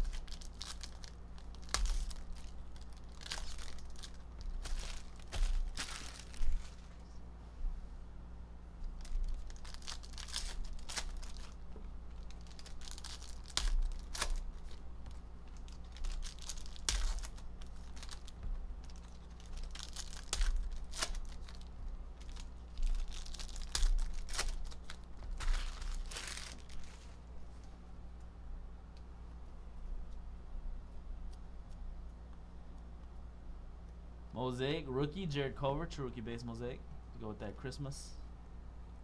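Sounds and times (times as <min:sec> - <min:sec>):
foil wrappers tearing and crinkling: 0:00.0 - 0:07.0, 0:08.8 - 0:27.2
steady low hum: 0:00.0 - 0:39.0.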